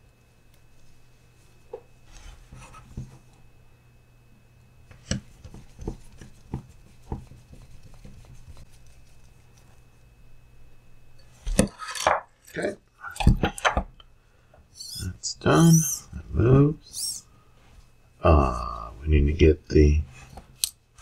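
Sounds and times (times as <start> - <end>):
low hum: 12.4 - 21.0.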